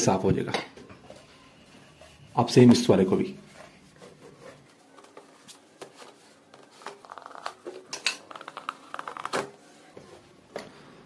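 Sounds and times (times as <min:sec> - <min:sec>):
cloth squeaking on rubber: 0:06.6 - 0:09.7.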